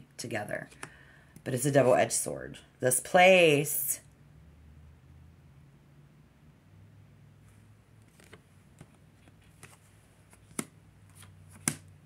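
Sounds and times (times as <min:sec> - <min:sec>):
cards clicking and tapping: 0:08.0 - 0:12.0
card snap: 0:10.4 - 0:11.9.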